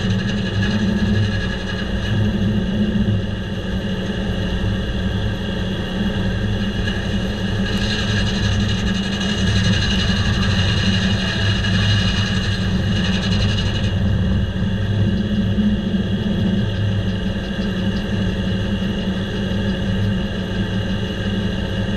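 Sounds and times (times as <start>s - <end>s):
diesel engine running: 0.0s - 21.9s
circular saw cutting log: 6.8s - 14.1s.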